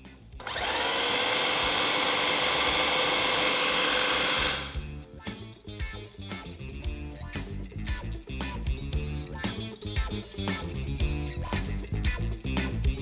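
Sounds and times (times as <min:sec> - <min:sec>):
background music: 0:00.0 - 0:13.0
food processor motor grinding: 0:00.4 - 0:04.8.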